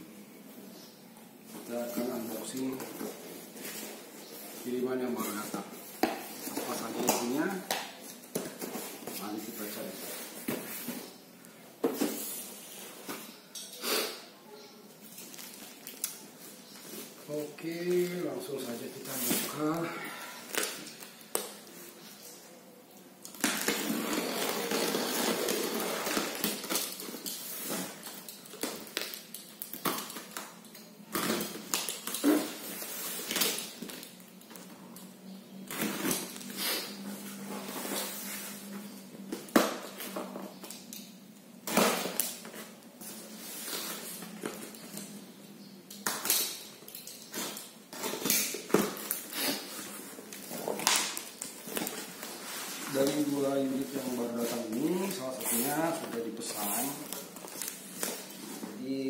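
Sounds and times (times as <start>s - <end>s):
plastic and cardboard rustling: 1.4s - 11.2s, 23.3s - 34.8s, 46.3s - 59.0s.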